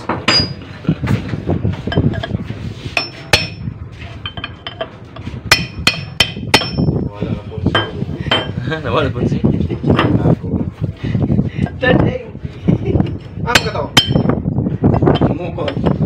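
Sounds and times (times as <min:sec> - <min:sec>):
hammer striking steel bar: 0:00.1 - 0:00.6, 0:03.0 - 0:03.6, 0:05.5 - 0:06.9, 0:13.6 - 0:14.3.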